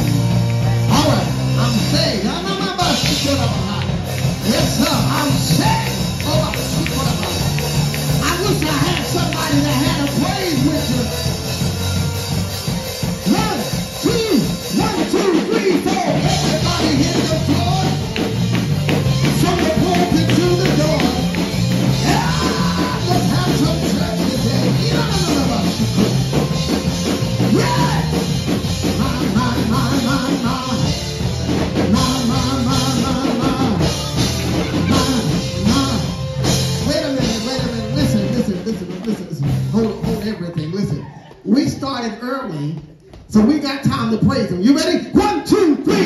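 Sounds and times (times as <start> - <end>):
gospel band playing upbeat song: 0.0 - 46.0
voices singing: 19.2 - 26.4, 27.3 - 38.5.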